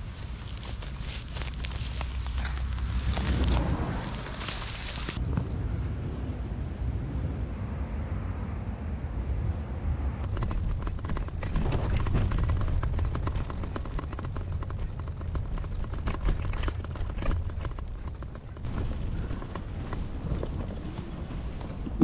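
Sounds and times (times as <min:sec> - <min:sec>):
bike clicks and rattles: 0:00.0 - 0:05.2, 0:10.3 - 0:22.0
wind rumbling on microphone: 0:00.0 - 0:22.0.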